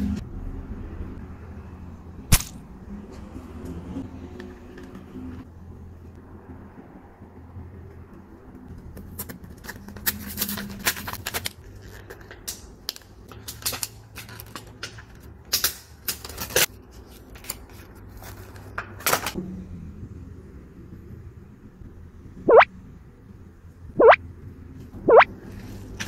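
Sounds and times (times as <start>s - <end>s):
jelly toys squeezed sticky clicks: 24.0s - 24.2s.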